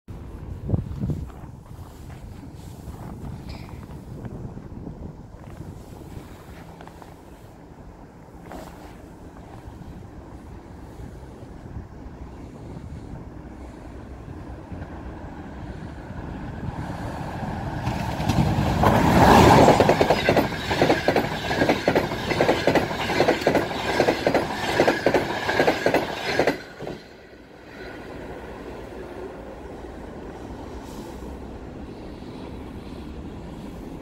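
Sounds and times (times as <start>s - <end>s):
electric locomotive passing: 1.4s - 34.0s
train wheels clacking over rail joints: 17.5s - 27.2s.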